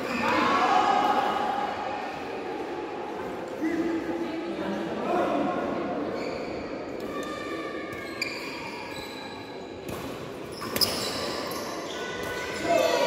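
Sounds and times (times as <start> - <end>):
shoes squeaking on court floor: 6.2 - 6.8, 8.0 - 13.0.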